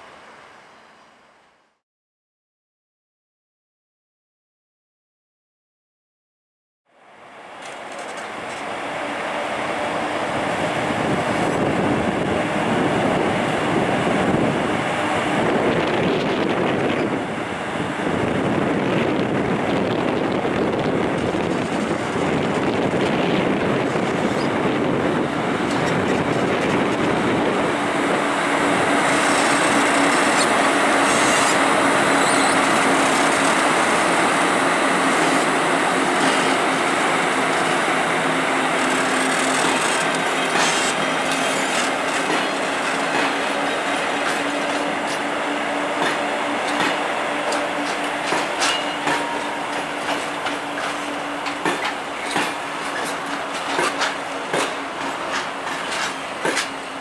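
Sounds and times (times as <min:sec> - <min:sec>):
train wheels rumbling on rails: 0:07.4 - 0:57.0.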